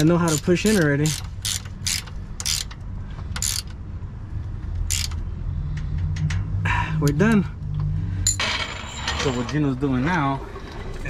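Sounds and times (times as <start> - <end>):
ratcheting wrench clicking: 0.0 - 3.8, 4.8 - 6.5.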